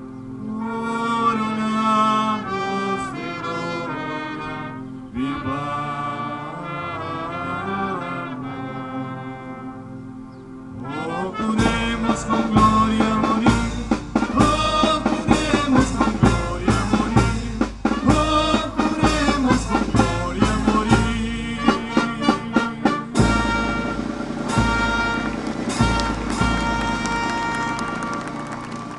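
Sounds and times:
brass band playing: 0.4 - 28.9
steady drum strokes: 11.6 - 28.9.

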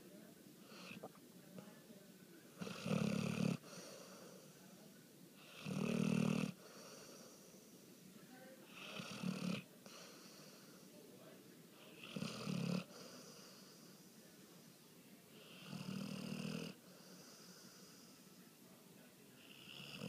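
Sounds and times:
dog snoring: 2.6 - 4.2, 5.4 - 7.5, 8.7 - 10.6, 11.8 - 13.9, 15.4 - 18.1, 19.4 - 20.0.

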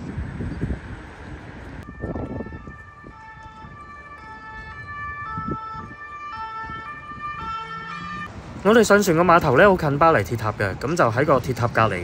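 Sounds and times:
low street rumble: 0.0 - 12.0
emergency vehicle siren: 1.8 - 8.9.

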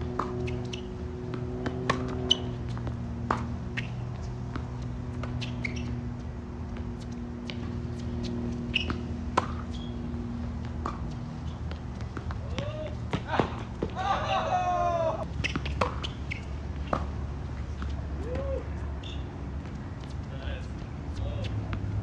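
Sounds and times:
ball bouncing: 0.0 - 14.0
shoes squeaking on court: 0.0 - 22.0
racket striking tennis ball: 0.1 - 6.1, 6.7 - 14.1, 15.4 - 18.0.

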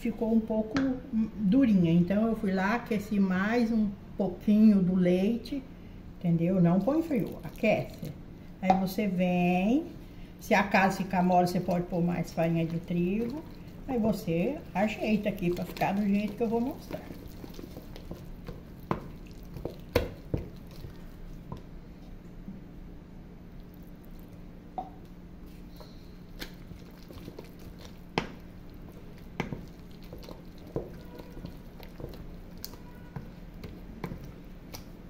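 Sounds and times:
steady low hum: 0.0 - 35.0
dough squelching: 6.3 - 9.7, 10.4 - 22.1, 25.4 - 35.0
wooden spoon knocking on metal bowl: 12.4 - 20.6, 28.1 - 34.4.

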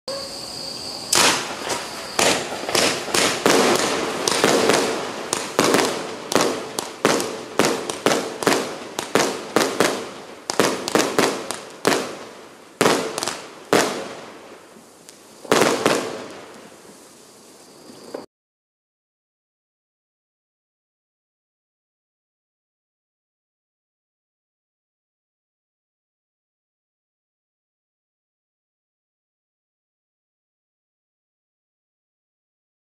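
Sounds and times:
firework bangs: 0.1 - 18.3.

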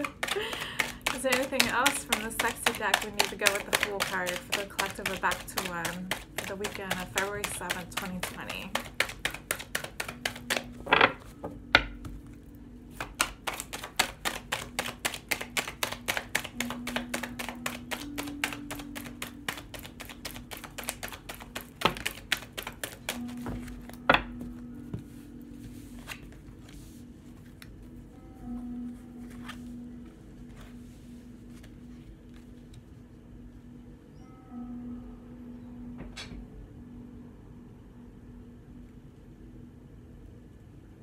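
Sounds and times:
cards shuffled by hand: 0.0 - 11.3, 12.9 - 27.8, 29.2 - 29.7, 31.4 - 32.8
soft low background music: 0.0 - 41.0.

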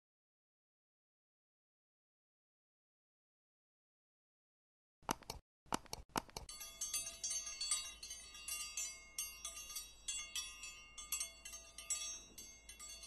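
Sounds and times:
quick clicks: 5.0 - 6.5
metallic chimes tinkling: 6.5 - 13.0.

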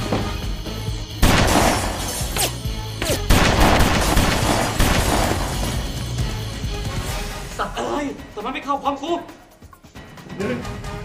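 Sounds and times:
background music: 0.0 - 11.0
gunfire bursts and crashing: 1.2 - 2.2, 3.2 - 5.8.

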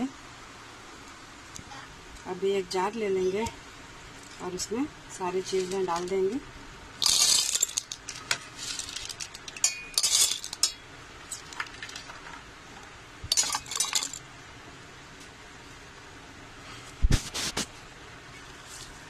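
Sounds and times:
dry lentils clattering in steel jar: 7.0 - 12.4, 13.3 - 14.2
single clinks: 9.6 - 10.9.

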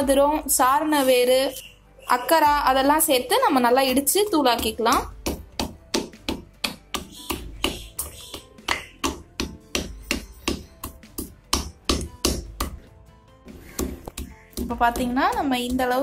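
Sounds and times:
wooden pestle pounding in mortar: 3.9 - 12.9, 13.5 - 16.0.

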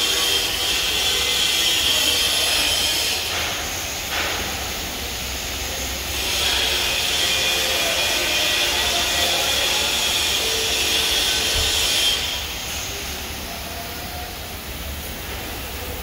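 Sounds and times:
machine high whine: 5.1 - 15.0.

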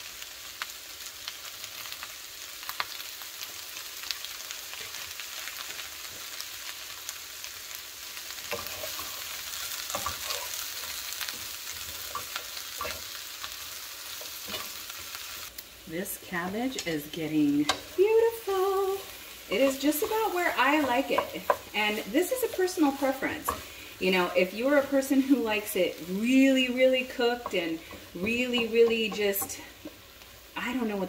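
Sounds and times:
cabbage and bacon sizzling in skillet: 0.0 - 31.0
spatula scraping pan: 8.5 - 13.2, 14.1 - 15.1, 16.3 - 24.9.

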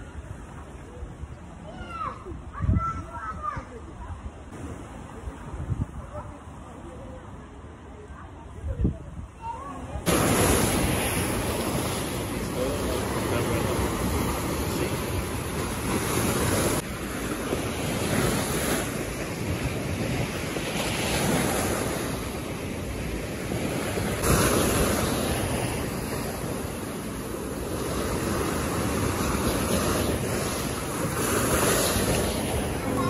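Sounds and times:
sea waves breaking: 9.7 - 33.0.

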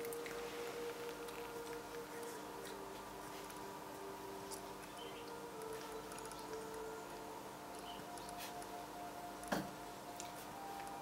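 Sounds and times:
soft background music: 0.0 - 11.0.

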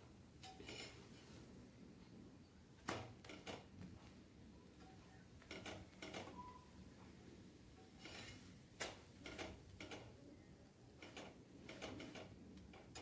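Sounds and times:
metal spatula tapping and scraping: 0.4 - 1.2, 7.7 - 10.1.

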